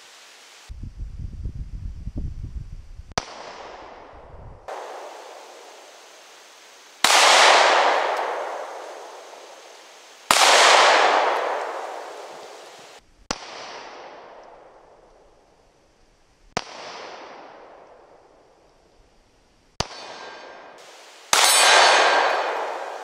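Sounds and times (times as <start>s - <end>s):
pistol shots: 7.0s - 9.6s, 10.3s - 14.4s, 19.8s - 23.0s.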